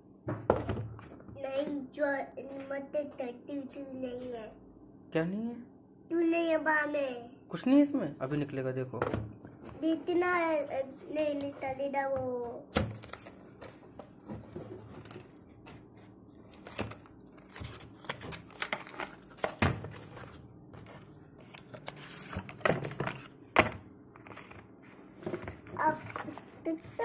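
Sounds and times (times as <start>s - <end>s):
papery rustling: 12.9s - 23.3s.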